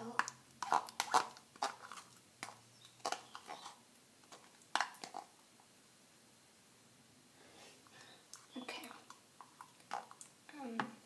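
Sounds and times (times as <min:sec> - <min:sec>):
slime squelching: 0:00.0 - 0:05.4.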